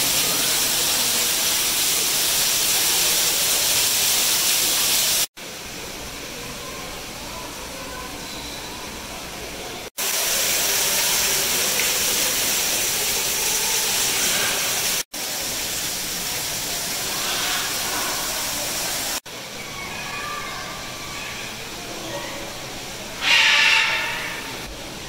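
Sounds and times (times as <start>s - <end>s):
rushing hiss: 0.0s - 5.3s, 10.0s - 19.2s
faint bird chirps: 8.2s - 8.9s.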